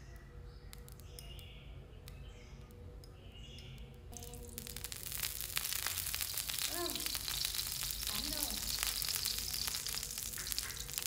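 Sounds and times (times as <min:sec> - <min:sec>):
liquid trickling: 0:04.1 - 0:11.0
sizzling and spitting on griddle: 0:04.2 - 0:11.0.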